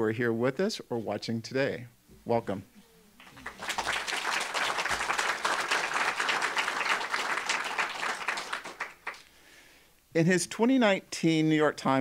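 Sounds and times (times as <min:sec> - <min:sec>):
audience applauding: 0:03.2 - 0:09.3.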